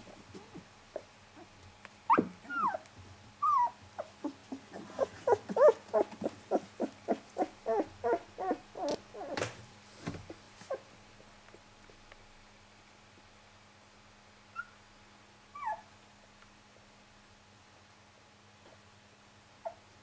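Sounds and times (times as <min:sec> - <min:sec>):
puppy whimpering and squeaking: 0:02.1 - 0:02.8, 0:03.4 - 0:09.4, 0:14.6 - 0:14.8, 0:15.5 - 0:15.9.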